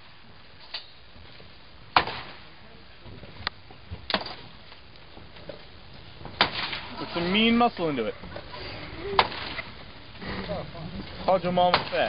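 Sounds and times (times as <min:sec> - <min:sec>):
sledgehammer hitting wooden planks: 0:02.0 - 0:02.4, 0:06.3 - 0:06.9, 0:11.7 - 0:12.0.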